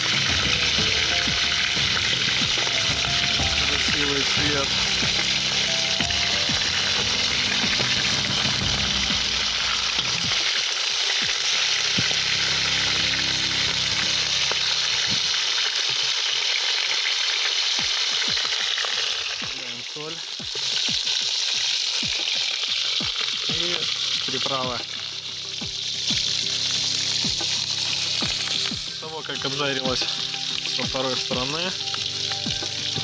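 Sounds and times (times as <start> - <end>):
meat sizzling in hot fat: 0.0 - 33.0.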